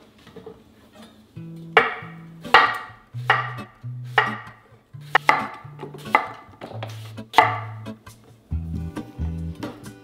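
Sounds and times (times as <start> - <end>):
soft background music with bass: 1.4 - 10.0
knife chopping on cutting board: 1.8 - 7.8.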